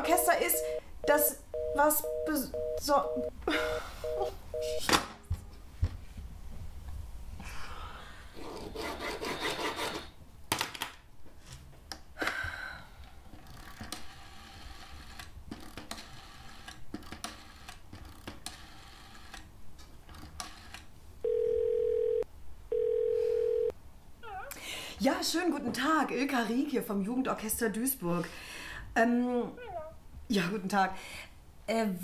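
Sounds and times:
telephone tone: 0.0 - 4.9, 21.2 - 23.7.

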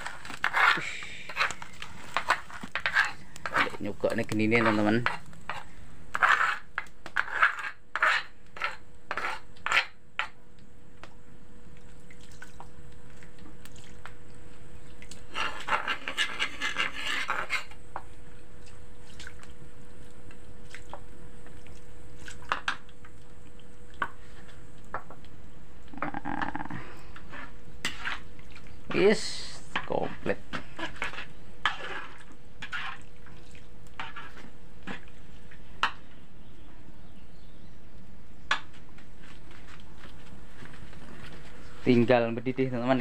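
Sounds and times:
metal spoon scraping pan: 0.0 - 10.4, 15.3 - 17.8, 27.2 - 28.3, 29.7 - 33.0, 34.0 - 35.0.

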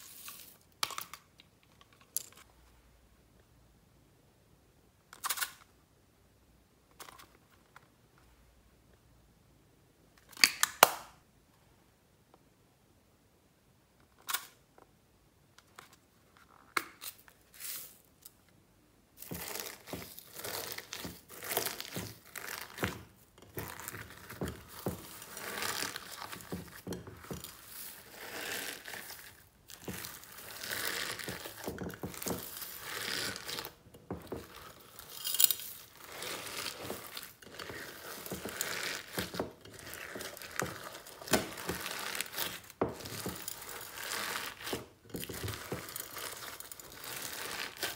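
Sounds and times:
slime crackling and squishing: 19.2 - 47.9.

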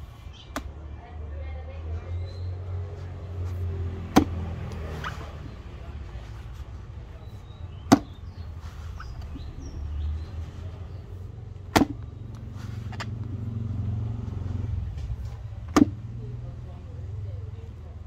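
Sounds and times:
axe striking wooden stump: 4.1 - 4.6, 7.8 - 8.2, 11.7 - 12.1, 15.7 - 16.0.

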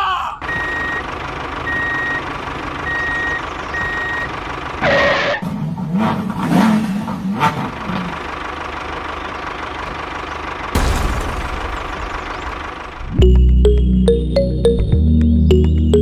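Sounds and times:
vehicle reversing alarm beeping: 0.4 - 5.4, 12.1 - 16.0
engine hum: 0.4 - 16.0
low wavering engine sound: 8.2 - 16.0.

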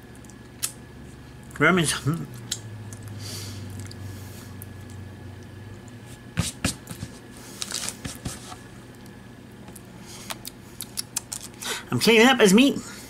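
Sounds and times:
faint low hum: 0.0 - 13.0
plastic wrapper rustling: 7.5 - 8.3.

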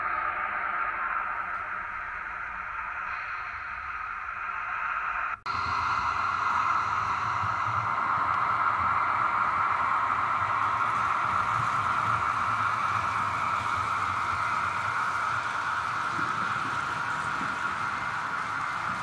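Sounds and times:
model train whirring on track: 5.5 - 19.0.

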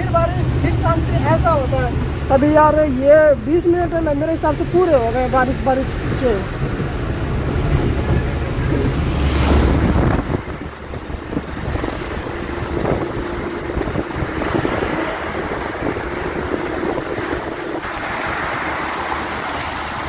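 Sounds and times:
wind buffeting microphone: 0.0 - 20.0
tyres hissing on wet road: 4.7 - 20.0.

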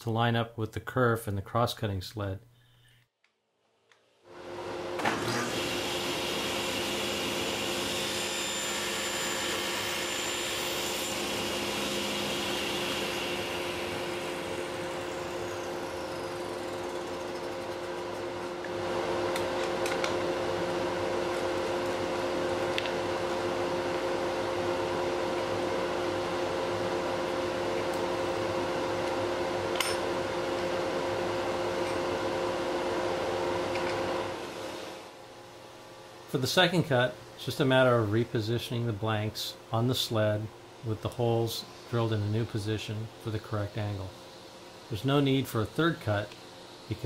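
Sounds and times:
workshop machine running: 4.5 - 35.2.

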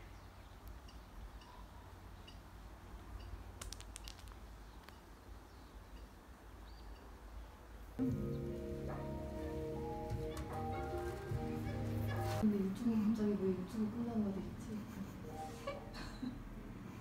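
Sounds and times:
background music: 8.0 - 12.4.

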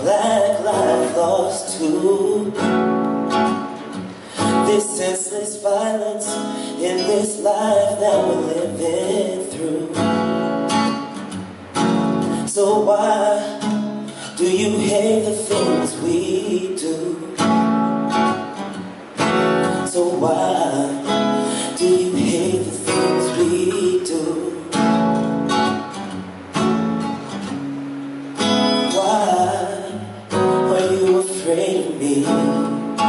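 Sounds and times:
person singing: 0.0 - 2.7, 4.3 - 10.1, 12.3 - 17.4, 19.7 - 24.9, 28.8 - 33.0
acoustic guitar strumming: 0.0 - 33.0.

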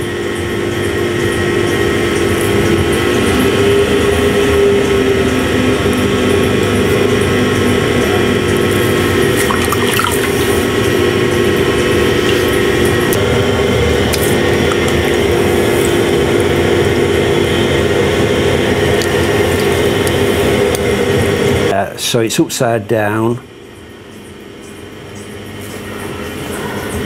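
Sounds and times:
potter's wheel humming: 0.0 - 27.0
wet clay squelching: 8.7 - 10.7.

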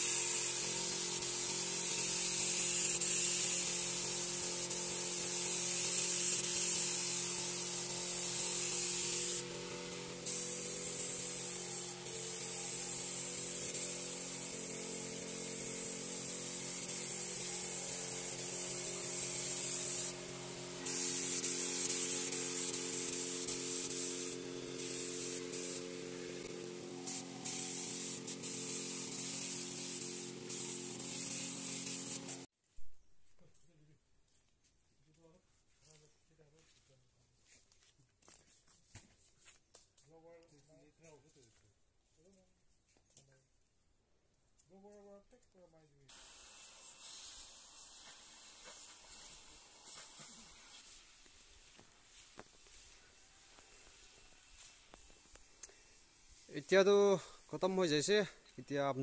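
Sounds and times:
air spray gun hissing: 0.0 - 32.5, 46.1 - 59.0.

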